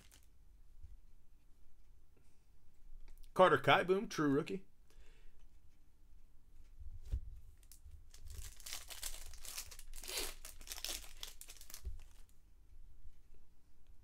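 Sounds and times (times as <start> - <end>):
foil wrapper tearing and crinkling: 0.0 - 0.3, 7.6 - 12.3.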